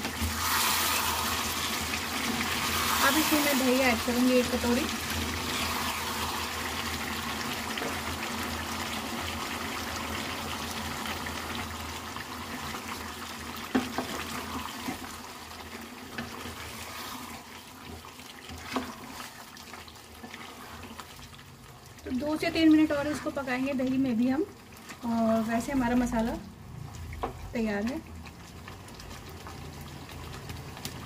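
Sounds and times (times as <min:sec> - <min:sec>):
gravy sizzling and bubbling: 0:00.0 - 0:31.0
spoon stirring in pot: 0:13.6 - 0:21.4.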